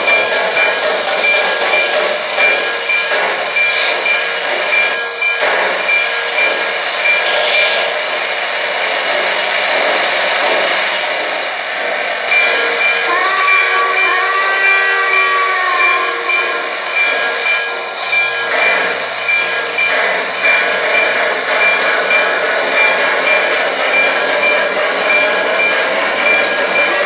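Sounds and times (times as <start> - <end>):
model steam locomotive sounds: 0.0 - 27.0.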